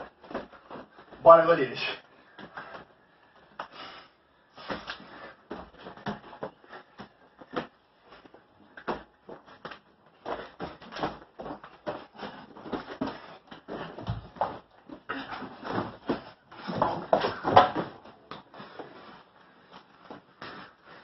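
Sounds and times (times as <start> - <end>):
bodies bumping: 0.0 - 1.3, 4.6 - 19.3.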